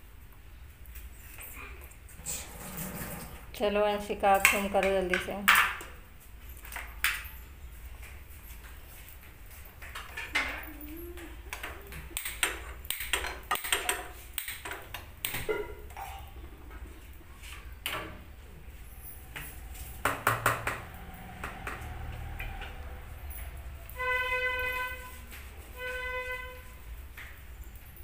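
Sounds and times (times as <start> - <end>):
utensils clinking on cookware: 4.0 - 6.0.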